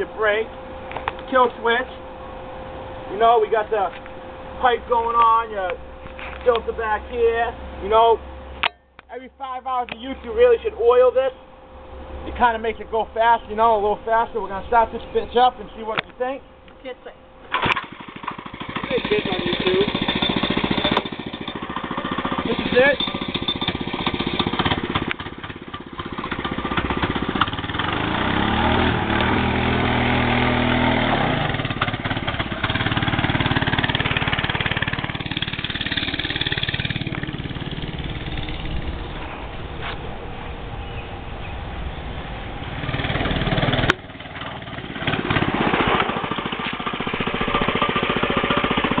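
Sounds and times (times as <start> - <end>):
minibike engine revving: 17.5 - 39.3, 42.6 - 49.0.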